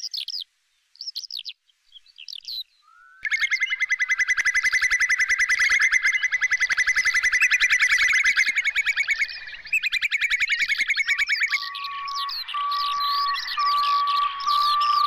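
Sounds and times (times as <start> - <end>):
bird rippling trill: 3.0 - 15.0.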